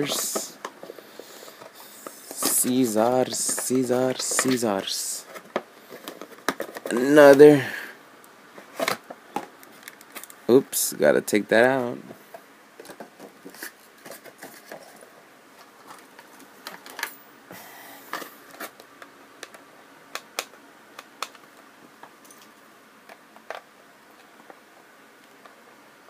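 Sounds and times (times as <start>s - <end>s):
packaging rustle: 12.8s - 16.5s.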